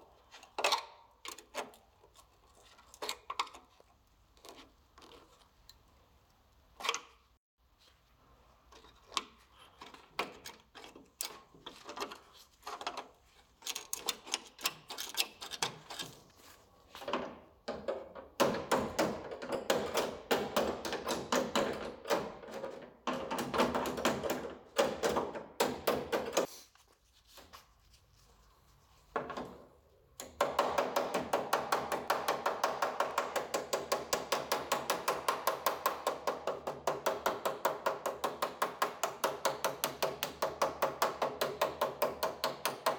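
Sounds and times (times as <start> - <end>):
hammer tapping on steel panels: 17.0 - 26.5, 30.2 - 42.9.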